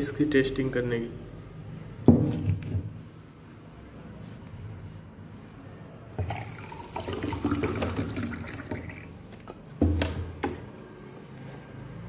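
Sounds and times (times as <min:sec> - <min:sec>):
water pouring into glass: 0:06.2 - 0:09.2.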